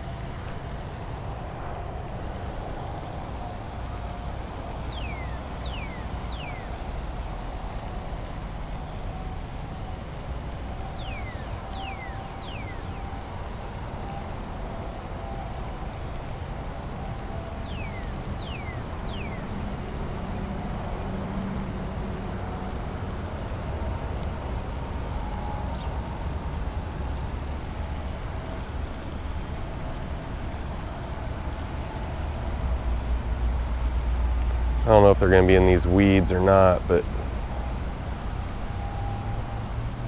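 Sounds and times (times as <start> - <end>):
low outdoor rumble: 0.0 - 40.0
bird whistling: 4.9 - 7.6, 10.9 - 13.0, 17.6 - 19.4.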